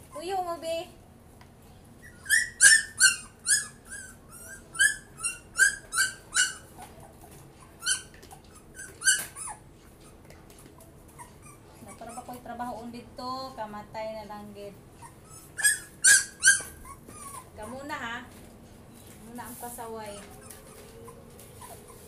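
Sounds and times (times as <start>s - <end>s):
puppies whining and yelping: 2.0s - 12.4s, 14.9s - 17.9s, 20.1s - 22.0s.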